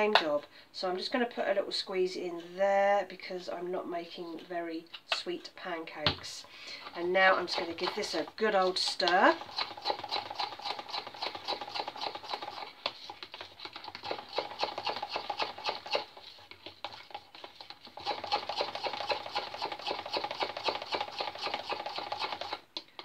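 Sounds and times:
spoon beating batter in jug: 0:06.0 - 0:23.0.

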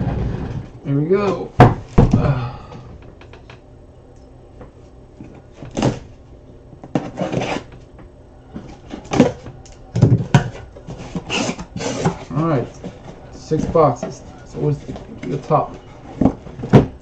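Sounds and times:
heavy thump: 0:01.6 - 0:02.5
cardboard scraping and rustling: 0:06.9 - 0:07.8, 0:10.2 - 0:17.0.

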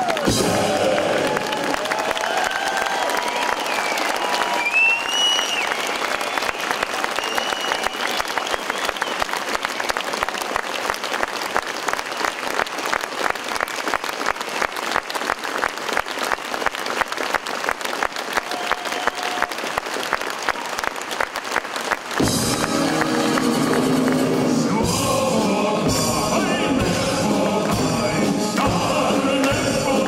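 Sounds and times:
band playing music: 0:00.0 - 0:01.5, 0:22.2 - 0:30.0
audience applauding: 0:00.0 - 0:26.8.

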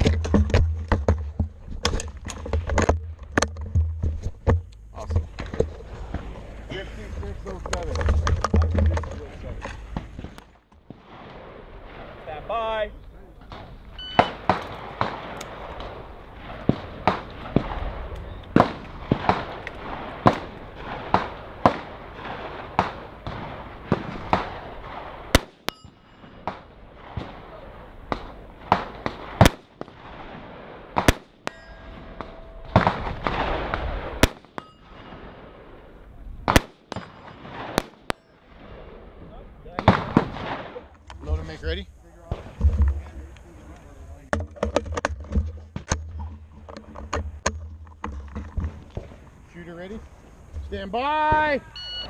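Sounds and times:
rifle shots: 0:13.5 - 0:39.1, 0:39.7 - 0:40.9.

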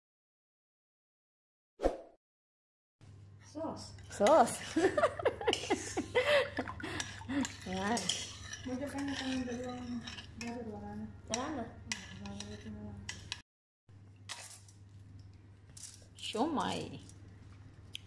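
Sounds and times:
spoon scraping metal bowl: 0:03.9 - 0:13.4.

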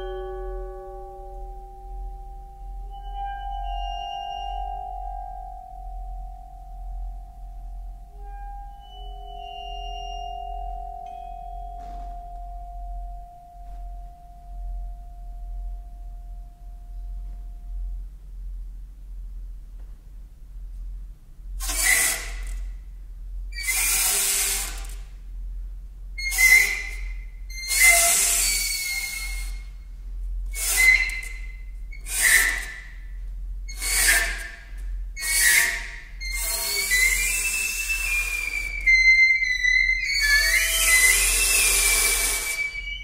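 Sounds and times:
whistling tone sliding in pitch: 0:08.2 - 0:11.5, 0:26.2 - 0:29.7, 0:35.2 - 0:43.0
breathy hissing saxophone: 0:40.1 - 0:43.0.

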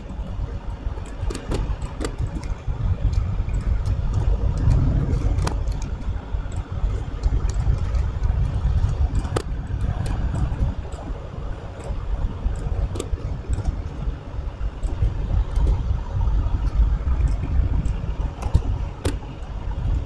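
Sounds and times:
low rumble: 0:00.0 - 0:20.0
keyboard and mouse clicks: 0:01.0 - 0:11.1, 0:11.8 - 0:14.1, 0:16.6 - 0:20.0.

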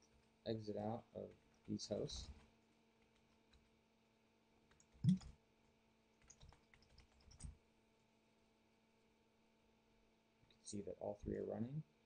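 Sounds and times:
faint steady hum: 0:00.0 - 0:12.0
computer keys typing: 0:04.7 - 0:05.3, 0:06.2 - 0:07.5.

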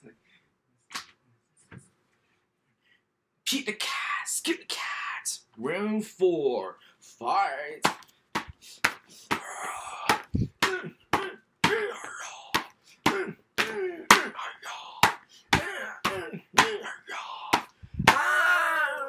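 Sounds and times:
man grunting: 0:09.3 - 0:19.0.

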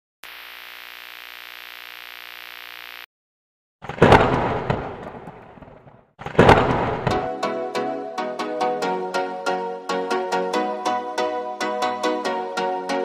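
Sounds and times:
loud thunderclap crash: 0:03.8 - 0:07.3.

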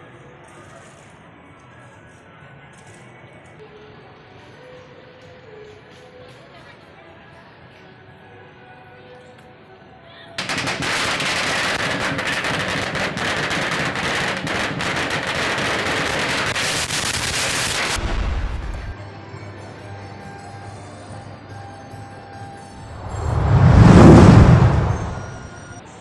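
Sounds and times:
firecrackers crackling: 0:10.4 - 0:19.0, 0:22.8 - 0:25.7.

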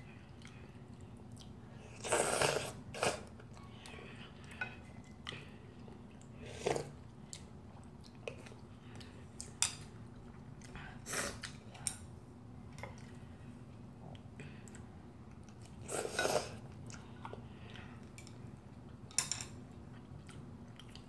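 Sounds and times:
person slurping noodles: 0:01.9 - 0:03.3.

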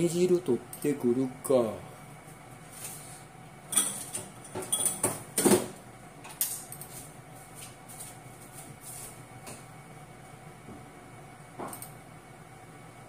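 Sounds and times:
kitchenware clinking: 0:03.7 - 0:05.2.

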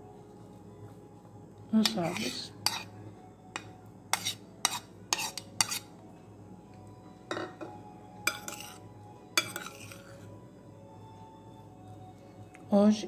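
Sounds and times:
metal spoon clinking on bowl: 0:07.3 - 0:08.8, 0:09.4 - 0:10.0.

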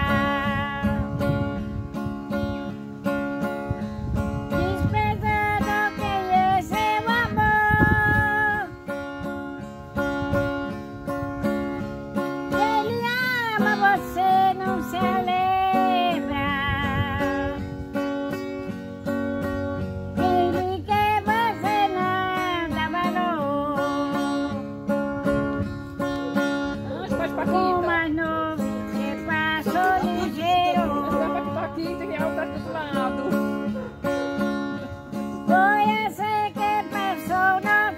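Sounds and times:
woman singing: 0:00.0 - 0:01.7, 0:04.5 - 0:08.9, 0:12.5 - 0:17.8, 0:20.1 - 0:37.9
acoustic guitar strumming: 0:00.0 - 0:37.9.

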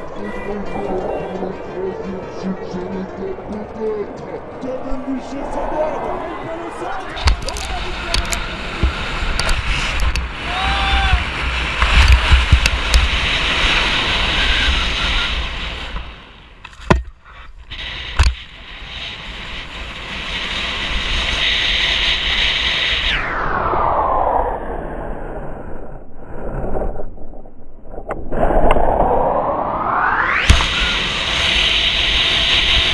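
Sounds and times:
wind buffeting microphone: 0:00.0 - 0:23.1
skis scraping over snow: 0:05.8 - 0:16.2.

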